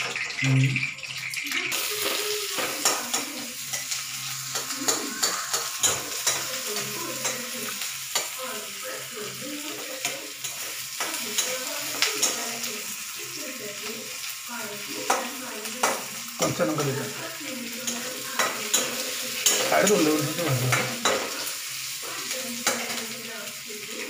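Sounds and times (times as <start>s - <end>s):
onions sizzling in hot oil: 0.0s - 24.0s
spatula scraping against pan: 2.0s - 12.7s, 15.0s - 23.2s.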